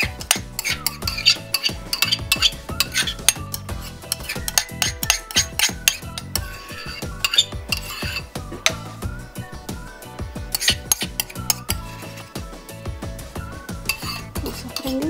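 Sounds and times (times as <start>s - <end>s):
metal utensil scraping ceramic bowl: 0.0s - 8.8s, 10.5s - 12.3s, 13.8s - 15.0s.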